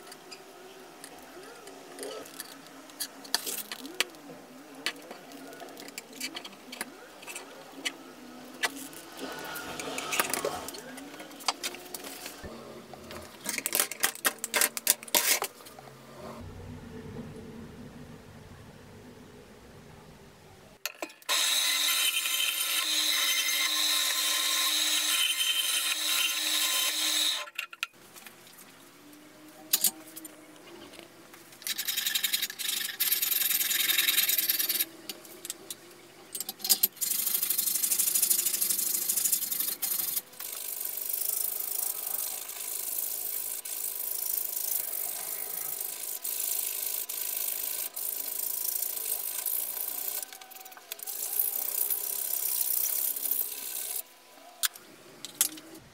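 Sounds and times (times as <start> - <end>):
band saw cutting: 21.3 - 27.5.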